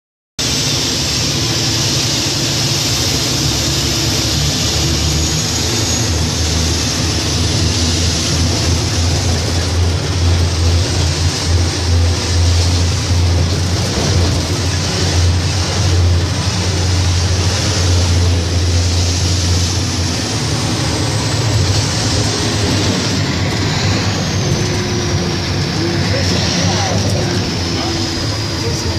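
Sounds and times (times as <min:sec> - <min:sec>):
truck diesel engine drone: 0:00.4 - 0:28.9.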